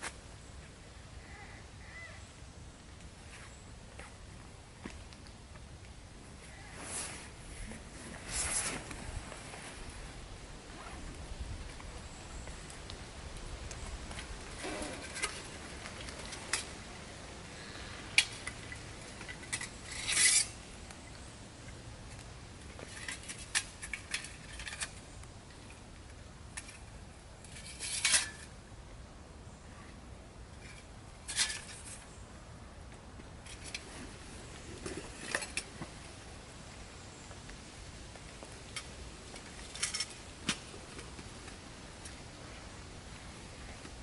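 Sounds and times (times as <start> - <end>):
metal scrapes: 19.5 - 20.6.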